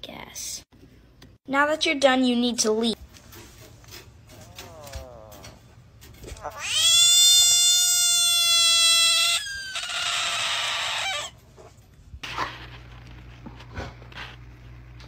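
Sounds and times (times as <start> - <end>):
bullfrog distress scream: 6.4 - 11.4.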